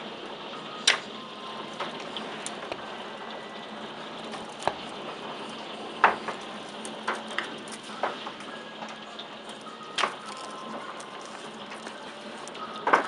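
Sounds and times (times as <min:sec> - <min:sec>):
heavy rain hissing: 0:00.0 - 0:13.0
hailstones banging: 0:04.2 - 0:08.9.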